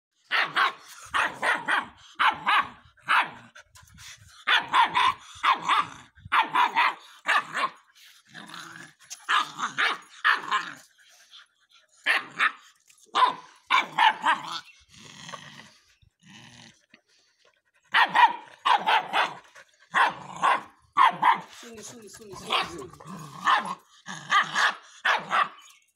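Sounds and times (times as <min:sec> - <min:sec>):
puppy barking: 0:00.3 - 0:03.4, 0:04.5 - 0:07.8, 0:09.3 - 0:10.6, 0:12.1 - 0:14.6, 0:17.9 - 0:19.4, 0:20.0 - 0:21.5, 0:22.4 - 0:25.6.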